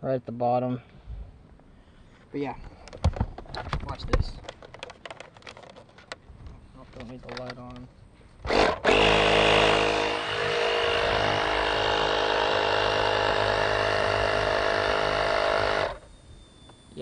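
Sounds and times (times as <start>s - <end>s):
air compressor running: 8.4s - 17.0s.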